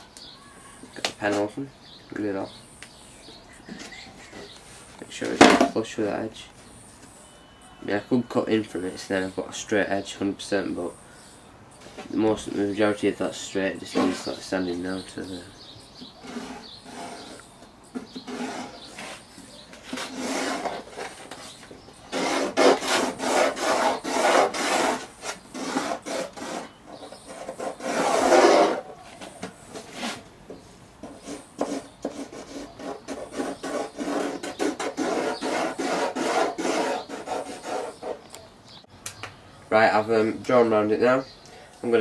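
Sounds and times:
pencil scratching on plywood: 16.0 - 30.3, 31.0 - 38.3.

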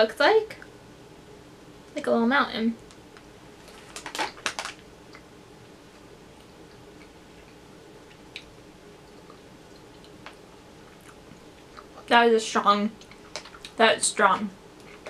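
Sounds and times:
snack packet crinkling and clicks: 3.6 - 4.8.

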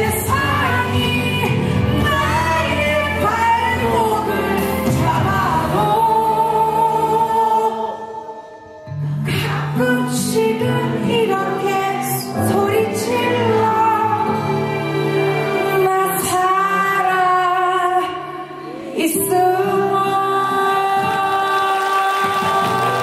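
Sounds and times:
woman singing pop ballad: 0.0 - 8.2, 9.2 - 14.5, 15.6 - 23.0
amplified instrumental accompaniment: 0.0 - 23.0.

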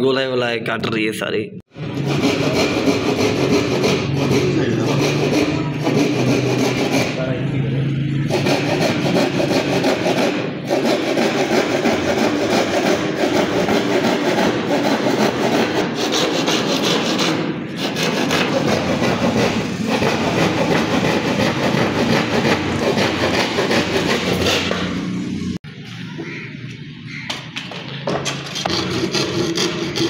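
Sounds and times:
hand saw cutting wood: 1.9 - 7.4, 8.2 - 25.2, 28.2 - 30.0.

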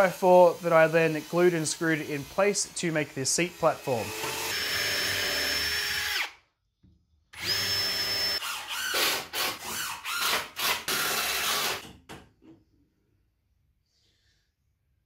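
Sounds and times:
cordless drill driving screws: 3.5 - 6.4, 7.4 - 11.9.

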